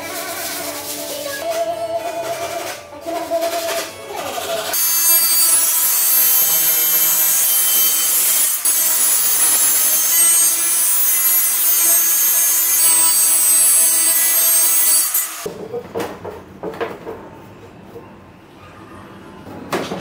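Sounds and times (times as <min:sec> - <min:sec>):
circular saw cutting board: 0:04.7 - 0:15.5.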